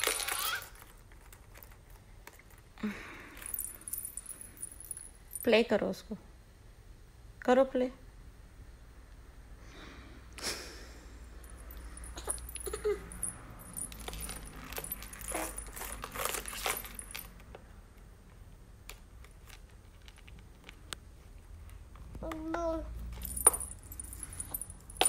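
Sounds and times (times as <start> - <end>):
metal bangles jingling: 3.4 - 5.6, 11.4 - 17.4, 23.1 - 25.0.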